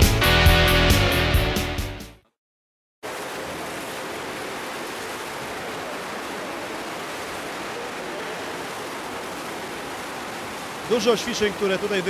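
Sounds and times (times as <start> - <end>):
swimmers splashing in pool: 3.0 - 12.0.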